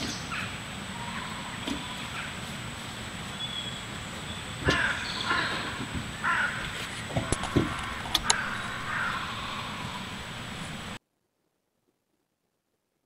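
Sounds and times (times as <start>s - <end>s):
quiet woodland background: 0.0s - 13.0s
crow cawing: 4.6s - 10.8s.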